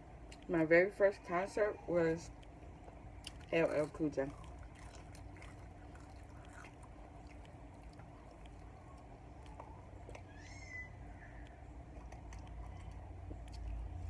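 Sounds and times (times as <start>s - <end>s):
low steady hum: 0.0s - 14.0s
faint chewing and mouth clicks: 0.2s - 0.6s, 2.2s - 14.0s.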